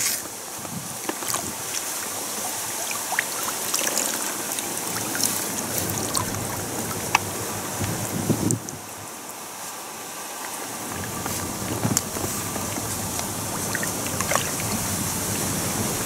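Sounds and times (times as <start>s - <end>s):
small drips and splashes: 0.0s - 8.8s, 10.4s - 16.0s
water trickling and dripping: 0.0s - 9.5s, 10.3s - 16.0s
steady watery hiss: 0.0s - 16.0s.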